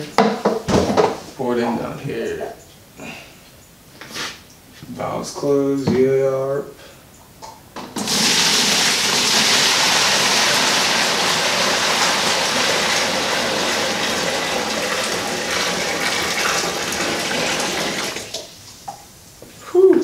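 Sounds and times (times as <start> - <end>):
hot water gushing: 8.0 - 18.9.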